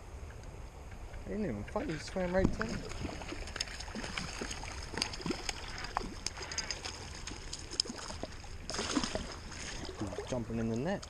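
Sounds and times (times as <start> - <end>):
stream water lapping: 1.7 - 11.0
fish splashing at surface: 2.5 - 10.3.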